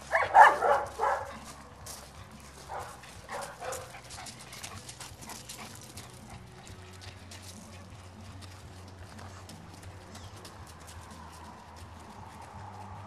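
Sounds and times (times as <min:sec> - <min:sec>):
footsteps on gravel: 0:00.0 - 0:13.0
dog barking: 0:00.1 - 0:01.4, 0:02.6 - 0:04.0.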